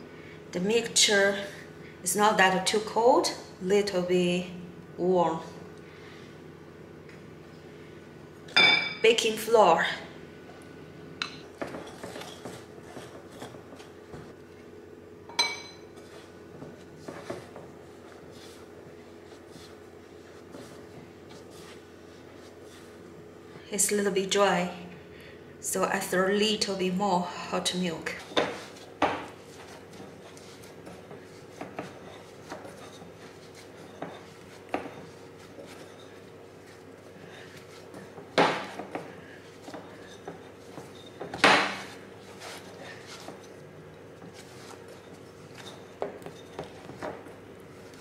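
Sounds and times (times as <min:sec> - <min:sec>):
bright ringing clink of glass: 0:08.6 - 0:09.1, 0:15.3 - 0:15.8
hands kneading dough: 0:15.8 - 0:23.7, 0:27.3 - 0:48.0.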